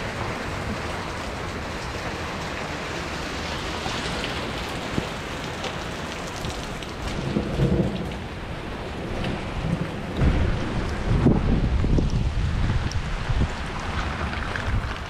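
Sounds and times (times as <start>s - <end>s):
steady rain falling: 0.0s - 15.0s
low rumble: 7.2s - 15.0s.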